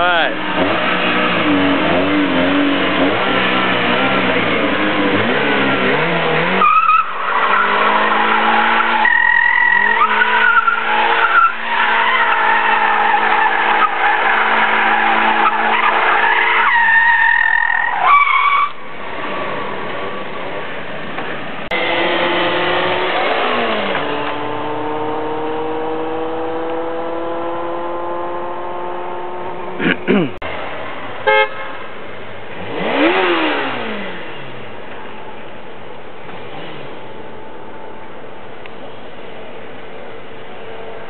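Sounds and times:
car engine at high revs: 0.0 - 16.6, 21.1 - 31.5, 32.5 - 35.5, 36.1 - 38.8
tyres squealing: 6.4 - 18.8.

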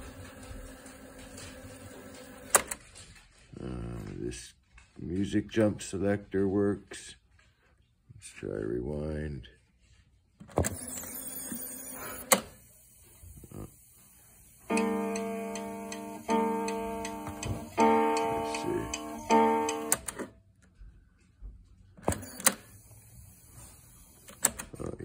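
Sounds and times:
tape rewinding whine: 10.6 - 13.8, 14.6 - 20.3
guitar-like chords from speaker: 14.7 - 20.1.

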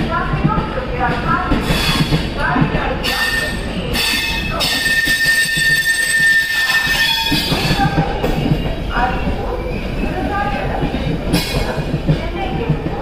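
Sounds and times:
train wheels rumbling over track: 0.0 - 13.0
high wheel squeal: 3.0 - 7.9.

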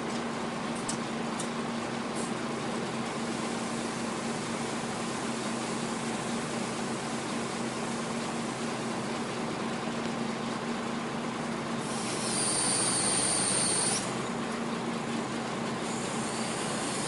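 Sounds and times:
engine and hydraulic hum: 0.0 - 17.0
loud high squeal: 11.8 - 14.1, 15.9 - 17.0.

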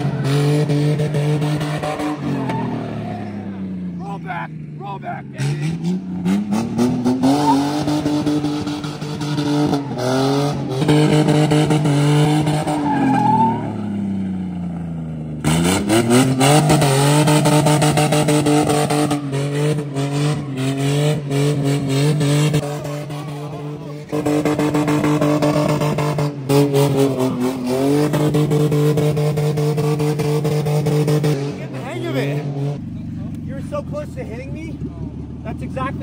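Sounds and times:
car engine revving: 0.0 - 36.0
tyres squealing: 12.5 - 13.8.

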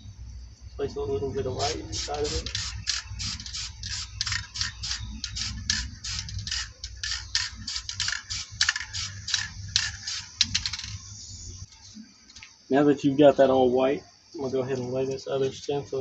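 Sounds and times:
faint steady spray hiss: 0.1 - 16.0
spray paint can bursts: 1.7 - 11.0.

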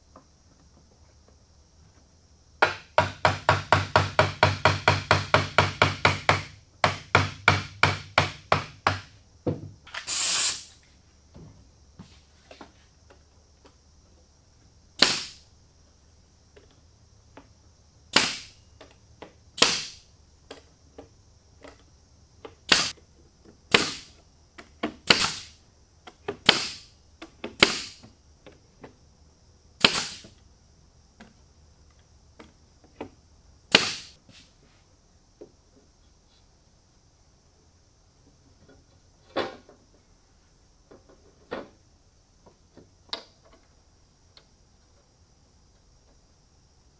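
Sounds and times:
faint high hiss: 9.1 - 18.8, 33.3 - 40.8
nail gun shots with air hiss: 9.9 - 10.8, 15.0 - 15.4, 18.1 - 18.6, 19.6 - 20.1, 22.7 - 22.9, 23.7 - 24.2, 25.0 - 25.6, 26.4 - 26.9, 27.6 - 28.1, 29.8 - 30.4, 33.7 - 34.2.

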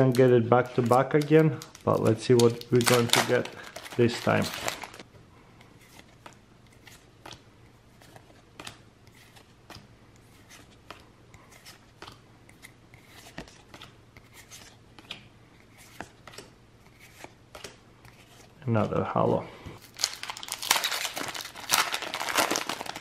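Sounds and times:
cards flipped by hand: 8.0 - 18.6.

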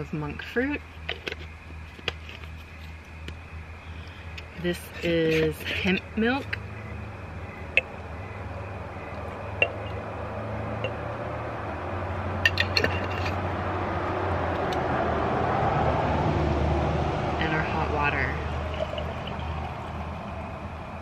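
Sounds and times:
low steady hum: 0.0 - 14.8, 16.5 - 21.0
glass jar clinking: 9.6 - 10.0, 12.4 - 13.4, 18.6 - 19.9.

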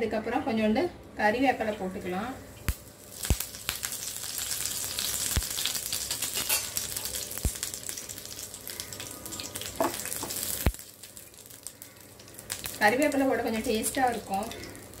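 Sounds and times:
leaves sizzling in hot oil: 1.9 - 15.0
oil popping: 2.6 - 12.8.

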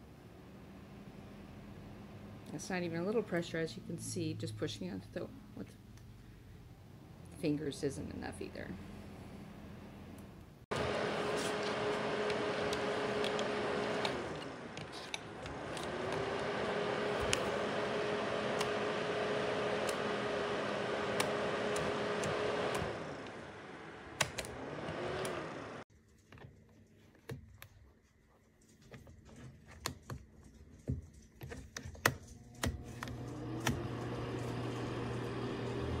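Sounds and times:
heater fan humming: 0.0 - 25.8, 32.2 - 36.0
control knobs clicking: 11.6 - 17.7, 18.4 - 19.0, 19.6 - 20.2, 21.0 - 23.4, 24.2 - 25.5
heater clicks: 18.4 - 23.4, 24.1 - 25.6.

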